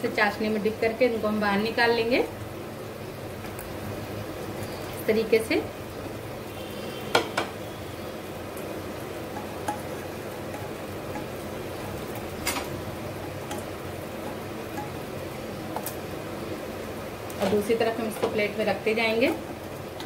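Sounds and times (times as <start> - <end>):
spatula knocking on pan: 10.5 - 15.0.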